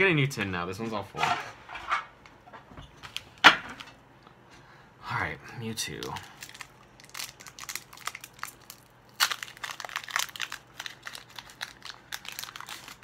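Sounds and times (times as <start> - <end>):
foil wrapper crinkling and tearing: 5.9 - 13.0.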